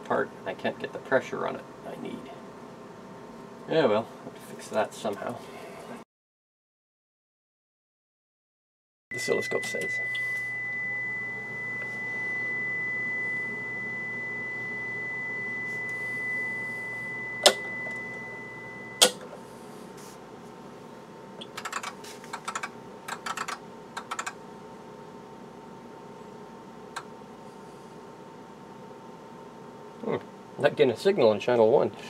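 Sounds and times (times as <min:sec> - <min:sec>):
high test tone through speakers: 0:09.1 - 0:19.2
low amplifier hum: 0:09.1 - 0:21.7
sharp clicks: 0:21.4 - 0:24.4.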